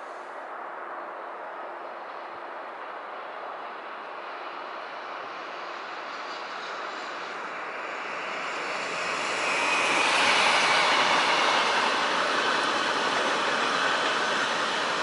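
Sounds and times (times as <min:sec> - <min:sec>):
freight train wheels on rails: 0:08.6 - 0:15.0.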